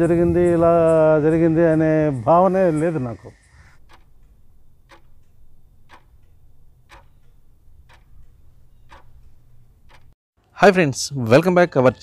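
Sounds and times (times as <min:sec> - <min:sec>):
clock ticking: 0:03.7 - 0:10.2.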